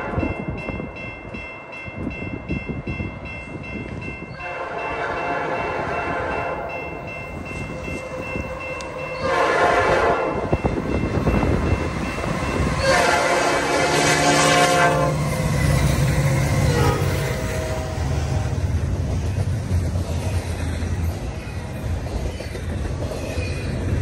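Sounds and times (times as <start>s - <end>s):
locomotive horn blasts: 4.4s - 6.7s, 8.0s - 10.5s, 12.7s - 15.4s, 16.2s - 18.6s.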